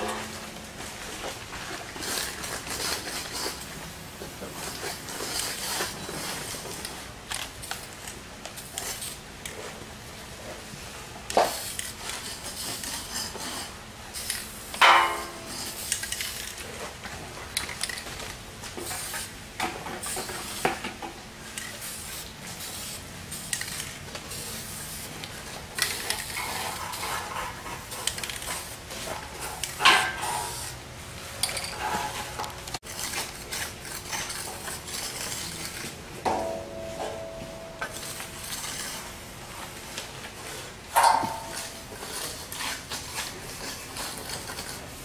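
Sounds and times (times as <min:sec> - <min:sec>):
metal clang ringing: 0:14.8 - 0:15.5, 0:36.2 - 0:38.7, 0:41.0 - 0:41.7.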